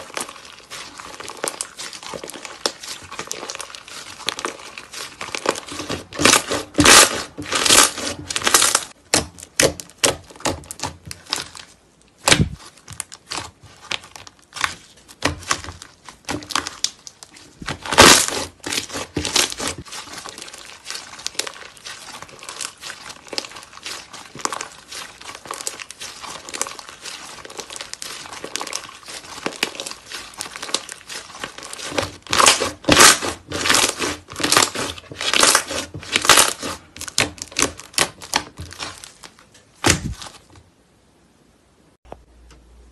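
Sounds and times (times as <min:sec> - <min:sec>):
dull thump: 0:39.8 - 0:40.3.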